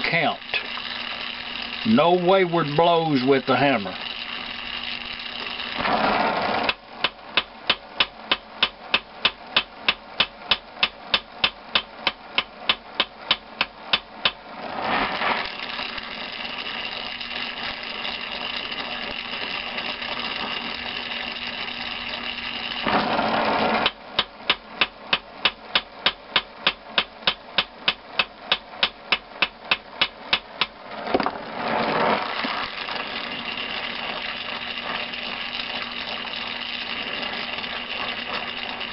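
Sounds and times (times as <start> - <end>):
torch flame hissing: 0.0 - 6.7, 14.8 - 23.6, 31.6 - 38.9.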